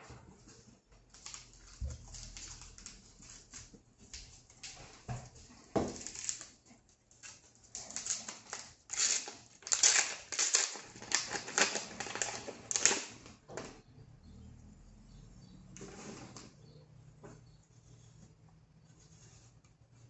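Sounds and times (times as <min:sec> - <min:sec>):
foil wrapper crinkling: 0:01.1 - 0:04.8, 0:05.6 - 0:13.4.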